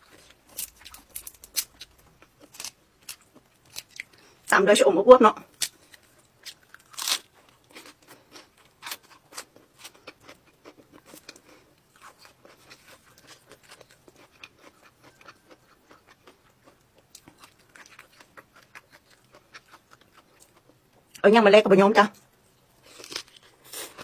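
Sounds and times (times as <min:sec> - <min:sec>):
person chewing crunchy food: 0:00.0 - 0:04.5, 0:05.5 - 0:21.2, 0:22.8 - 0:24.0.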